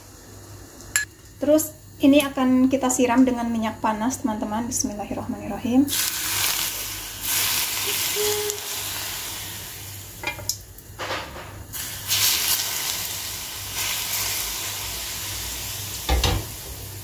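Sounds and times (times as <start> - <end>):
hot oil sizzling: 0.0 - 17.0.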